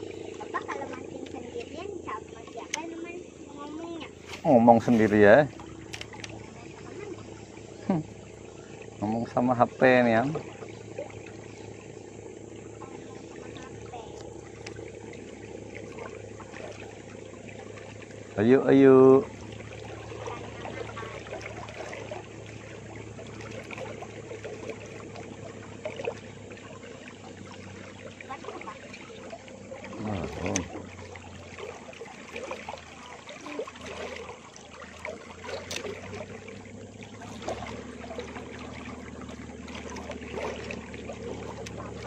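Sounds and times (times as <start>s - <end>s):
river water lapping boat hull: 0.0s - 42.0s.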